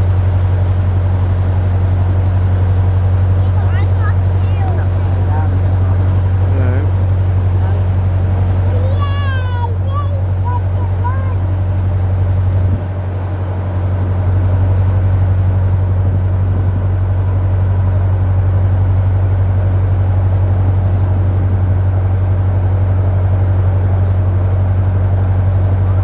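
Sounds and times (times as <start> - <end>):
diesel engine drone: 0.0 - 26.0.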